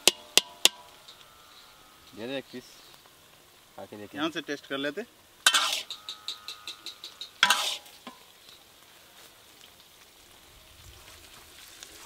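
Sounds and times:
meat sizzling in a pan: 0.0 - 12.0
metal ladle scraping iron pan: 5.4 - 8.3
faint metallic ring: 5.5 - 8.3.

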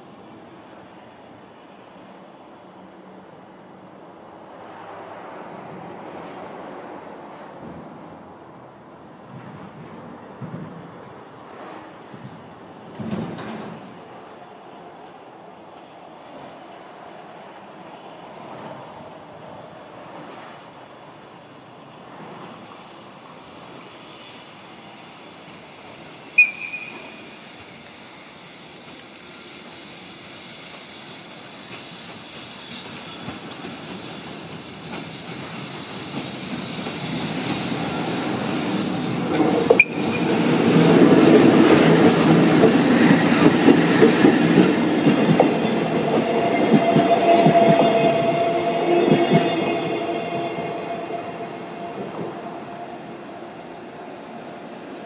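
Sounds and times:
train wheels rumbling on rails: 0.0 - 55.0.

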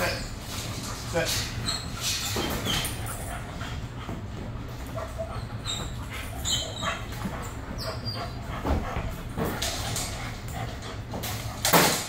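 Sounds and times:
dog whining and barking: 5.0 - 7.1.

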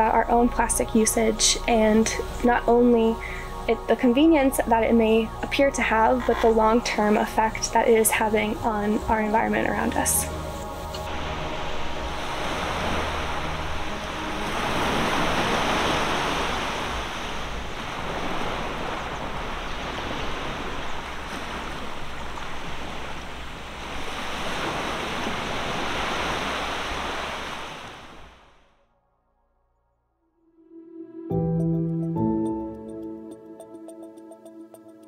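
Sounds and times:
wind: 0.0 - 28.8
small waves washing onto sand: 10.3 - 28.4.

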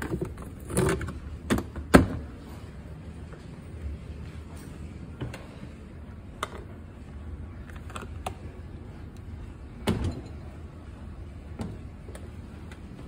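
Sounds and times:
low steady hum: 0.0 - 13.0
dishwasher clicks and knocks: 9.8 - 10.4.

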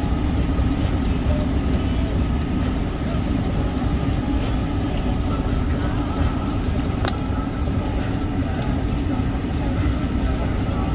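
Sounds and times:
faint ticks: 0.2 - 10.9
sharp click: 7.0 - 7.3.

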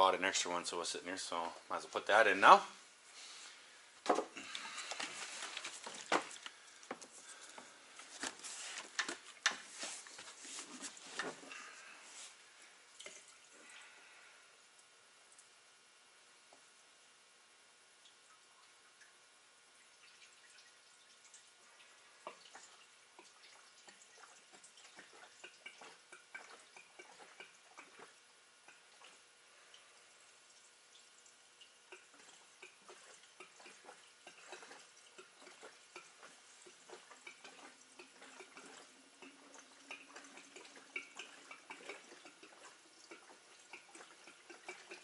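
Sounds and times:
fuel dripping and trickling: 18.0 - 45.0.

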